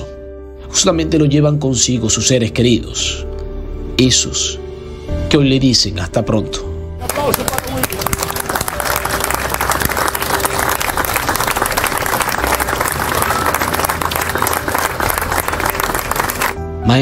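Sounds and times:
crowd applauding: 7.0s - 16.6s.

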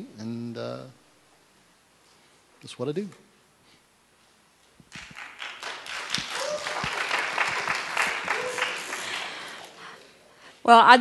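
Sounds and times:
audience applauding: 4.9s - 10.1s.

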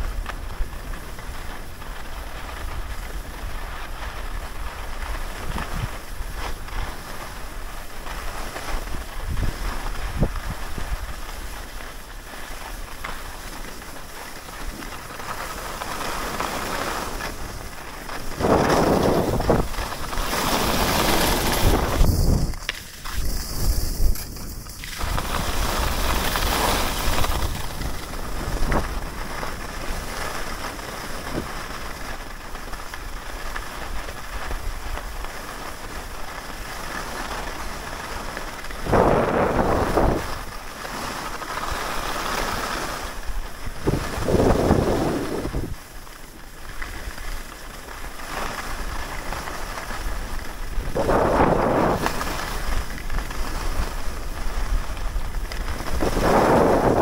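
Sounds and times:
skis scraping over snow: 0.0s - 57.0s
wind rushing over microphone: 8.8s - 11.6s, 17.0s - 30.2s, 38.6s - 40.8s, 42.4s - 46.0s, 49.8s - 57.0s.

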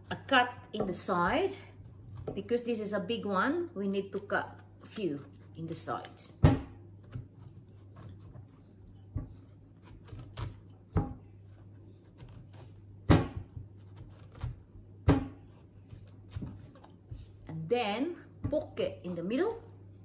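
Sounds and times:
knife scraping fruit skin: 4.2s - 5.9s, 7.0s - 10.8s, 11.4s - 12.8s, 13.4s - 14.7s, 15.4s - 17.0s.

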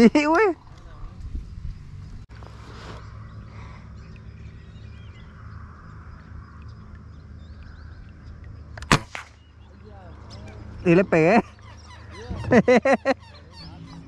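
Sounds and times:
faint bird chirps: 0.6s - 14.0s
rifle shot: 8.8s - 9.4s.

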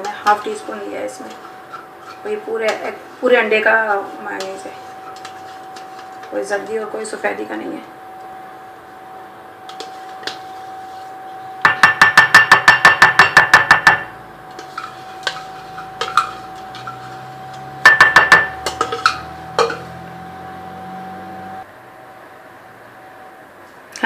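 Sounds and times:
spoon clinking against a dish: 14.6s - 19.9s.

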